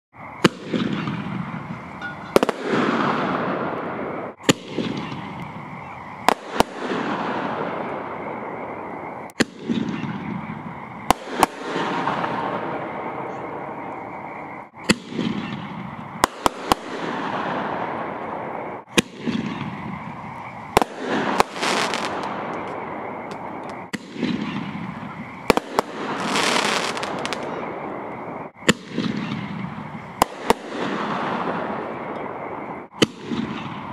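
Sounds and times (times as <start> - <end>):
firework bangs: 0.4 - 8.7, 9.4 - 13.6, 14.8 - 33.9
firework whistling scream: 14.6 - 33.9.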